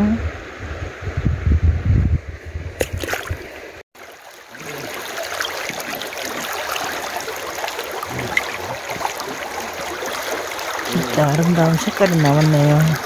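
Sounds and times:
stream water trickling: 2.8 - 13.0.

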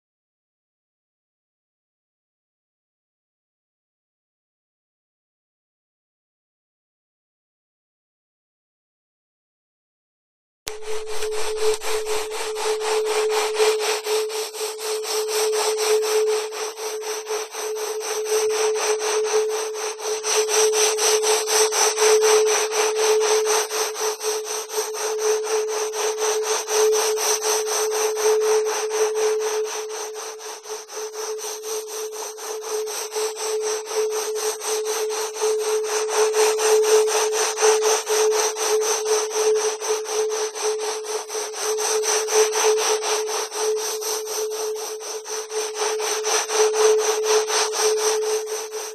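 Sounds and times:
steady mid-pitched tone: 10.7 - 18.4.

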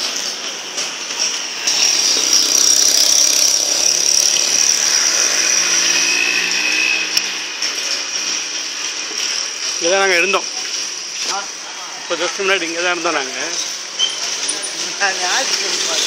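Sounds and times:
motor whining over a hum: 1.7 - 7.5.

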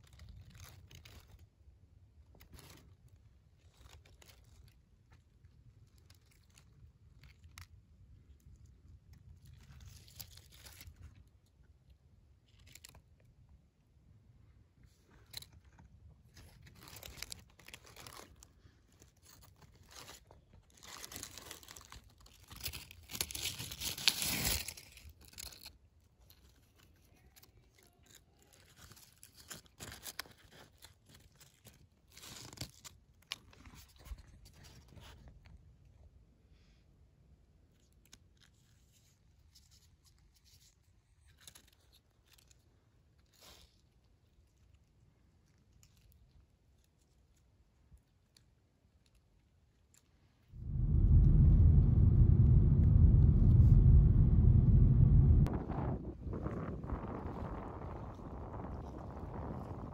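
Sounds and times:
rustling of wet leaves: 16.7 - 18.4, 20.8 - 25.7.

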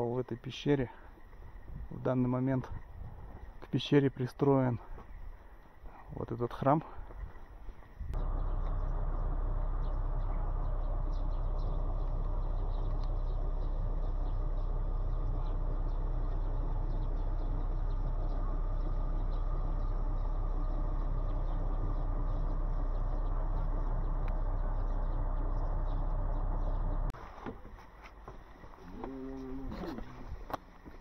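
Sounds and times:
wind buffeting microphone: 1.5 - 3.6, 6.9 - 8.4.

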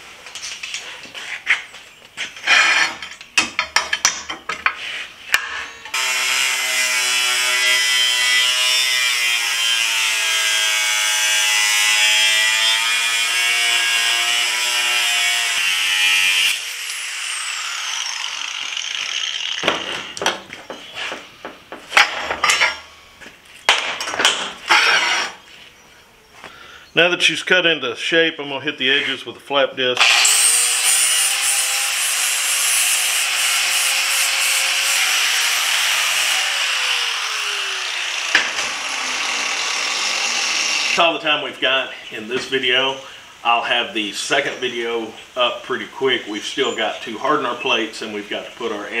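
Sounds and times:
clanks of plate and tools: 2.3 - 5.9, 21.8 - 22.9
angle grinder cutting steel: 5.3 - 20.2, 24.7 - 25.4, 30.0 - 41.1.

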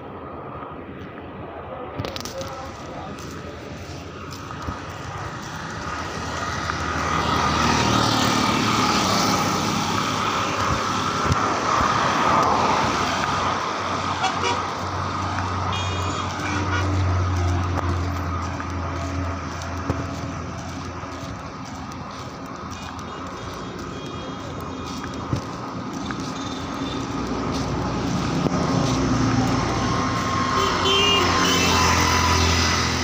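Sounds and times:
street traffic: 0.0 - 33.0
vehicle horn: 14.2 - 14.7, 15.7 - 17.0, 30.5 - 32.1.

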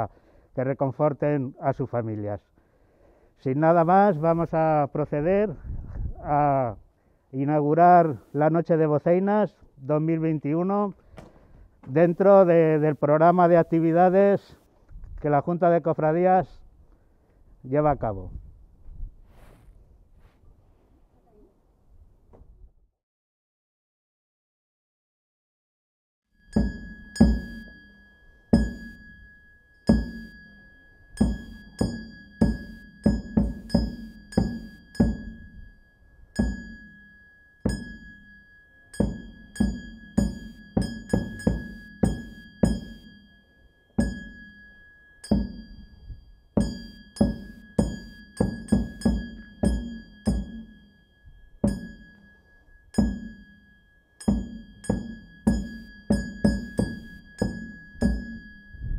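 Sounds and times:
loud ringing percussive strikes: 26.4 - 58.9
thin high tone: 26.4 - 58.9.

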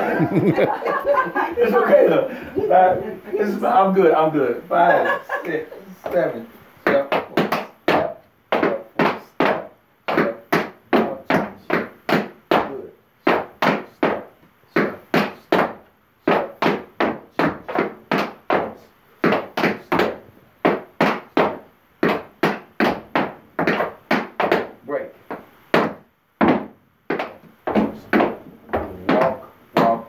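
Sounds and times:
tap shoes on wooden board: 6.0 - 30.0.

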